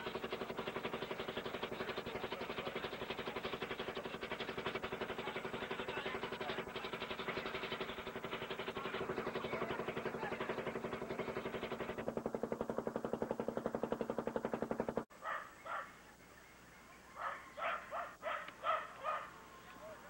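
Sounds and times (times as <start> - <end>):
boat engine chugging: 0.0 - 15.1
dog barking: 15.2 - 16.0, 17.2 - 19.4.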